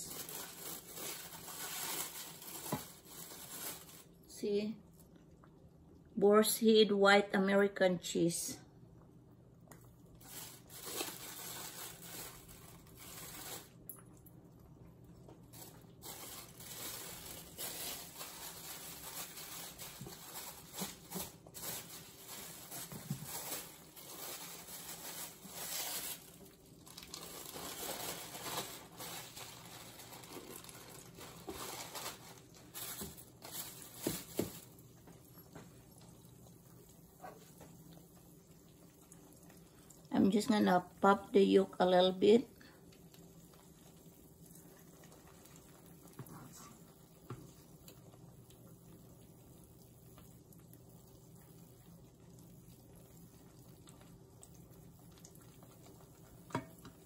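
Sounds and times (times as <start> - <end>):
plastic packaging crinkling: 0.0 - 4.3, 10.1 - 14.0, 15.3 - 36.8
eggs sizzling in pan: 31.0 - 57.0.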